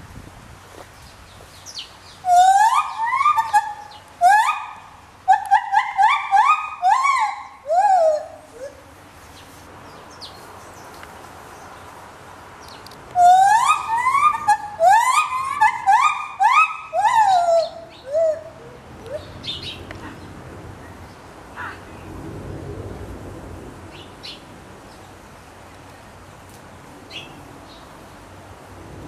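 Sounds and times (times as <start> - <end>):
gibbon calling rising hoots: 2.2 - 8.9, 13.2 - 19.4.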